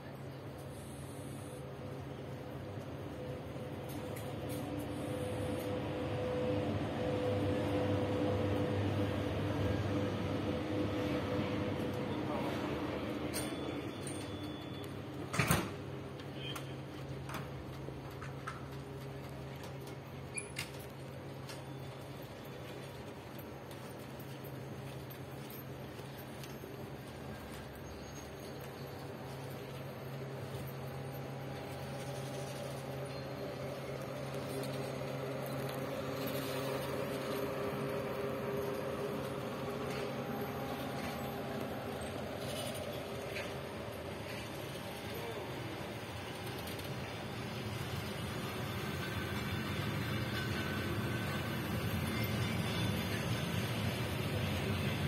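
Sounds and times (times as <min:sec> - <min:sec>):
train coaches rolling past: 0:00.0 - 0:55.0.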